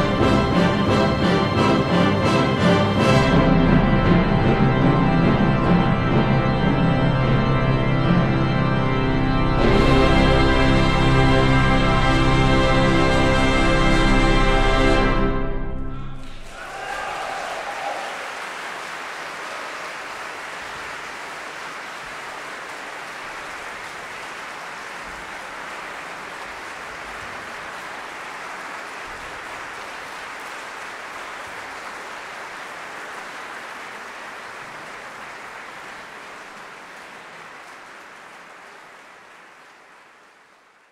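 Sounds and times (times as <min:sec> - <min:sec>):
audience applauding: 0:16.2 - 0:40.9.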